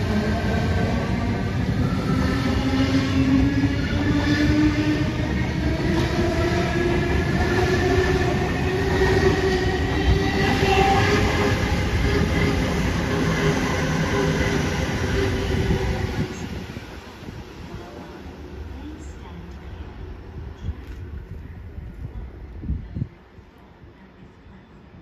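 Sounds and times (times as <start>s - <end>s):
train wheels on rails: 0.0s - 19.9s.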